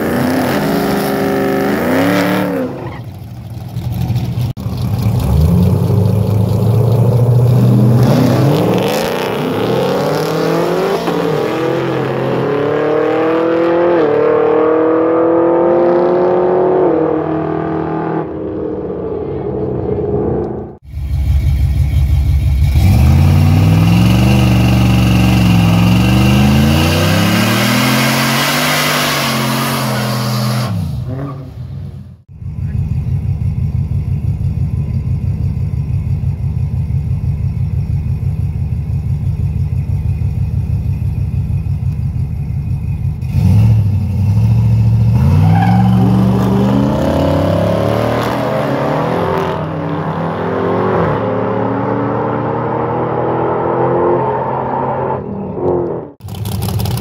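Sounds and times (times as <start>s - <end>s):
race car engine revving: 4.8s - 20.8s, 22.6s - 31.4s, 43.2s - 57.0s.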